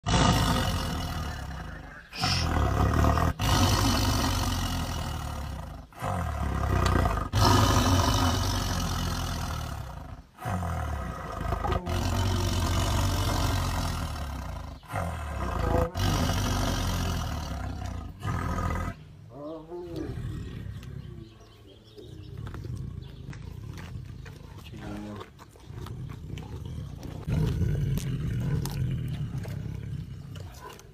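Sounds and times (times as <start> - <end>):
tiger roaring: 0.0 - 30.9.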